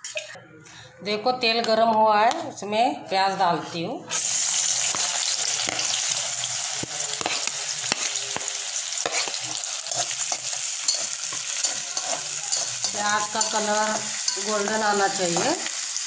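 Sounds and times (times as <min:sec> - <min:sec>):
onions sizzling in hot oil: 0:04.1 - 0:16.0.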